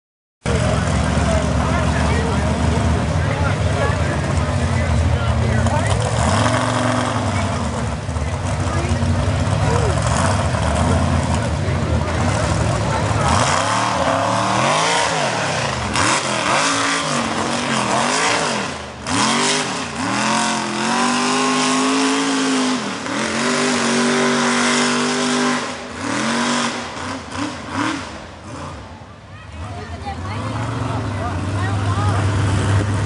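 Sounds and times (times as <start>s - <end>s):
truck engine revving: 0.4s - 33.0s.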